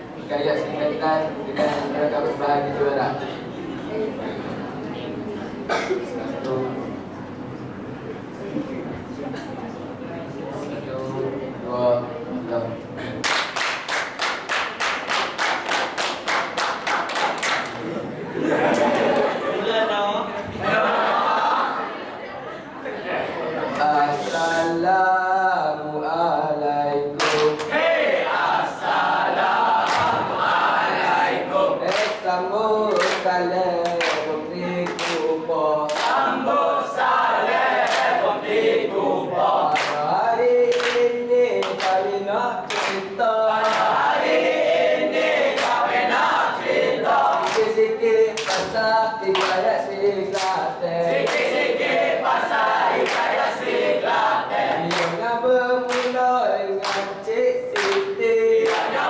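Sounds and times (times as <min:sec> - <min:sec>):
hand claps: 0:13.2 - 0:17.8, 0:27.2 - 0:27.7, 0:29.8 - 0:30.2, 0:31.9 - 0:32.2, 0:32.9 - 0:35.3, 0:35.9 - 0:36.2, 0:37.8 - 0:38.2, 0:39.7 - 0:40.0, 0:40.7 - 0:42.0, 0:42.7 - 0:44.0, 0:47.3 - 0:47.8, 0:48.4 - 0:50.6, 0:51.2 - 0:51.6, 0:53.0 - 0:53.4, 0:54.9 - 0:55.2, 0:55.9 - 0:56.2, 0:56.8 - 0:59.0
group singing in chorus: 0:20.4 - 0:22.1, 0:23.0 - 0:59.0.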